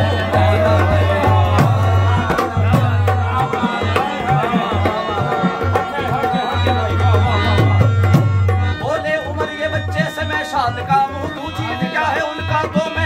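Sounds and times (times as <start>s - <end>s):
hand drum beat: 0.0s - 8.6s
harmonium melody: 0.0s - 13.0s.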